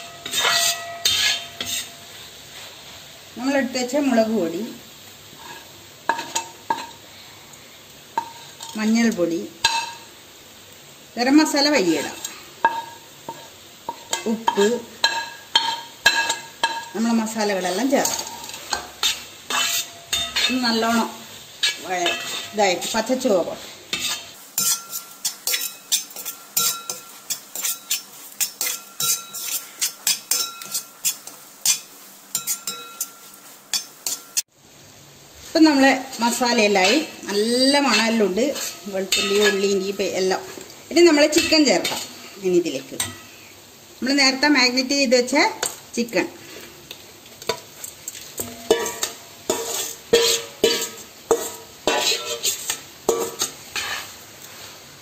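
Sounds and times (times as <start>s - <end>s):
metal bowl ringing: 0.0s - 1.9s, 30.3s - 30.9s, 32.4s - 33.3s, 48.4s - 49.2s
metal spoon clinking in brass pot: 0.0s - 2.0s, 14.1s - 16.9s, 18.0s - 20.6s, 24.0s - 34.4s, 37.8s - 39.8s, 48.4s - 53.9s
soft sizzle from pan: 0.0s - 55.0s.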